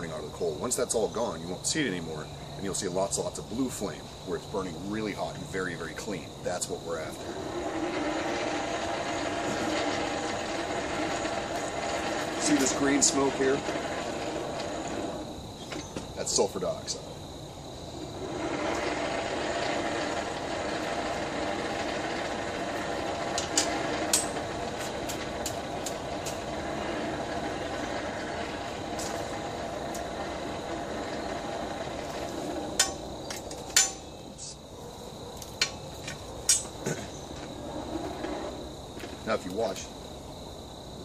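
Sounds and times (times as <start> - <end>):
hand-cranked forge blower whirring: 0.0 - 40.3.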